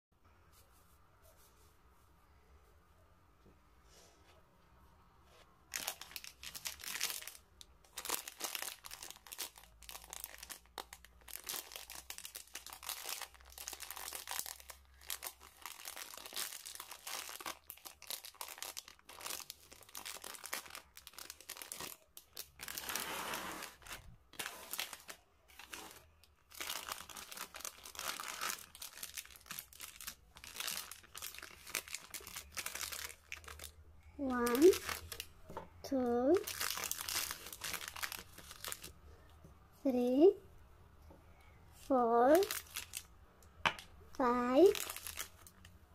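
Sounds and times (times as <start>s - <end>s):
plastic snack bag crinkling: 5.7s - 35.3s, 36.3s - 39.0s, 42.3s - 43.1s, 44.5s - 45.8s.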